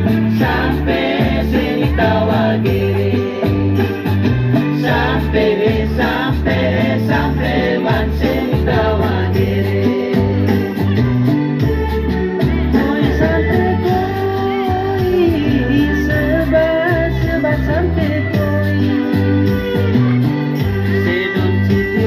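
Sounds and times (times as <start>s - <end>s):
voices singing together: 0.0s - 11.3s
amplified instrumental music: 0.0s - 22.0s
bass line: 0.0s - 22.0s.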